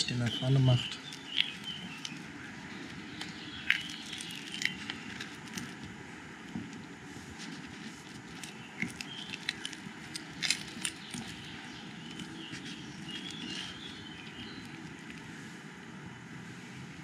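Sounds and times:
faint bird chirps: 0.0s - 5.1s, 10.3s - 15.5s
tortilla wrap crackling: 1.0s - 15.7s.

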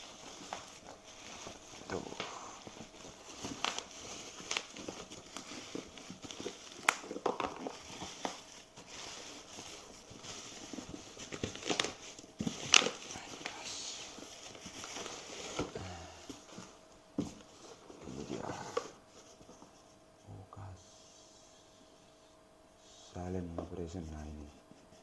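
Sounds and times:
bubble-wrap mailer crinkling: 0.0s - 16.6s.

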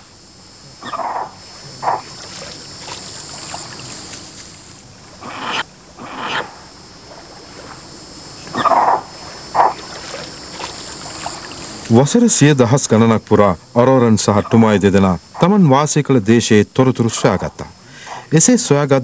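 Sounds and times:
steady high hiss: 0.0s - 19.0s
short animal calls: 0.8s - 4.3s, 5.1s - 11.9s, 14.3s - 15.6s.

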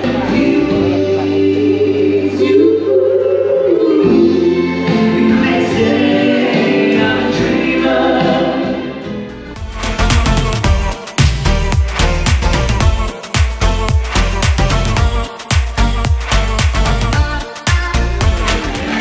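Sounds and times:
choir singing over backing music: 0.0s - 9.3s, 18.0s - 19.0s
dance music with steady beat: 9.6s - 19.0s.

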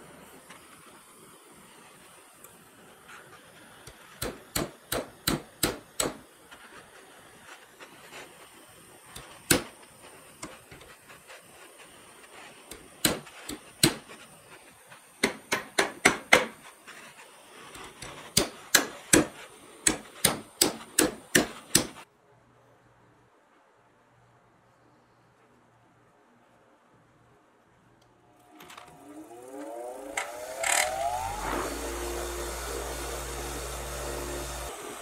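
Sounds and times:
hammer striking steel rod: 4.2s - 6.2s, 18.3s - 22.0s.

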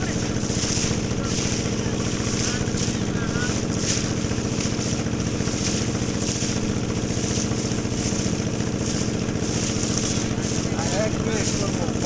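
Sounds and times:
motorboat engine running: 0.0s - 12.0s
water splashing against hull: 0.0s - 12.0s.

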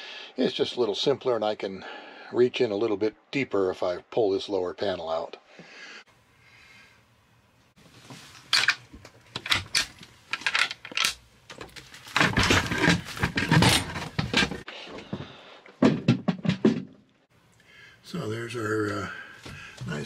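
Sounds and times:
wooden panel knocking and scraping: 15.8s - 17.0s.

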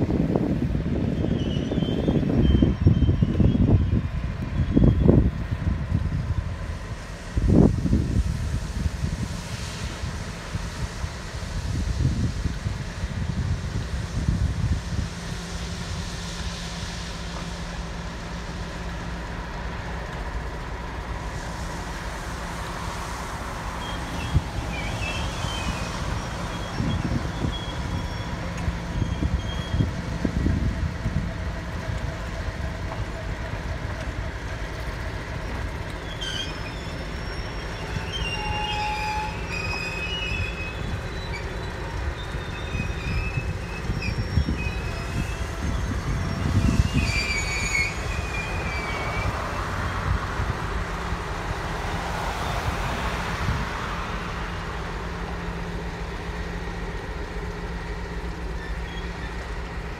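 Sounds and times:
locomotive engine droning: 0.0s - 59.9s
wheels squealing: 23.7s - 30.5s, 35.4s - 50.1s, 58.2s - 59.8s.

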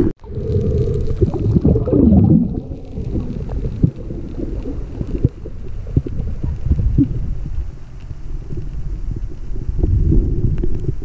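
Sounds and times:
muffled underwater rumble: 0.0s - 11.0s.

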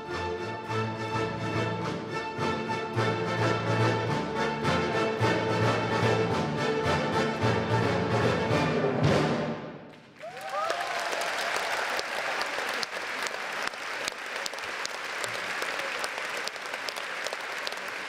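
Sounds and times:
audience applause: 9.9s - 18.0s.

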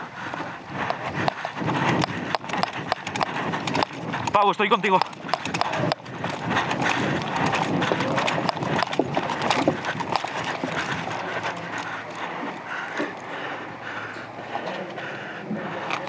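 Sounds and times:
gear rustling: 0.3s - 14.5s
footsteps on dirt and grass: 0.9s - 12.6s.

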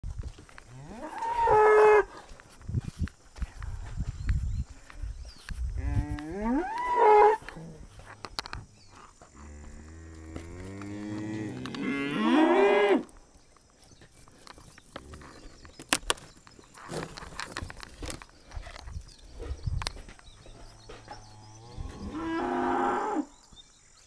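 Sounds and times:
cow mooing: 21.5s - 23.3s.

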